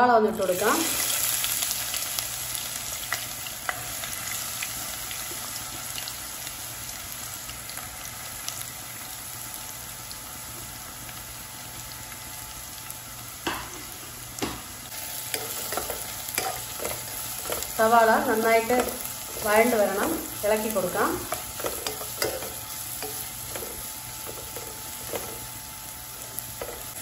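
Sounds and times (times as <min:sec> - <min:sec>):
onions sizzling in oil: 0:00.0 - 0:27.0.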